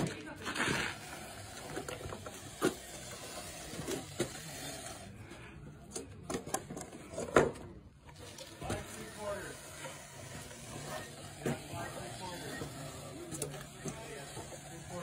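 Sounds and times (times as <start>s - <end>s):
scraping and rattling of mortar: 0.0s - 5.4s.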